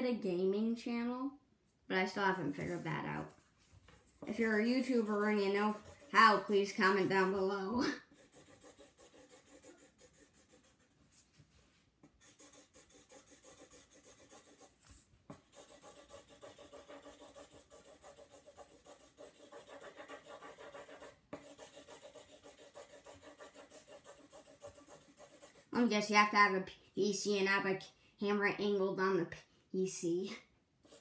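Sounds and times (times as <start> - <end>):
marker scratching on paper: 2.2 - 11.4, 12.0 - 26.0.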